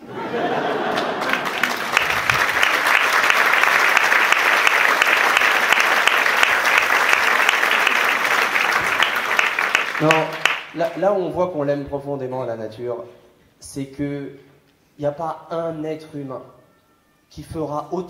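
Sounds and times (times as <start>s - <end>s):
audience applauding: 0.6s - 11.0s.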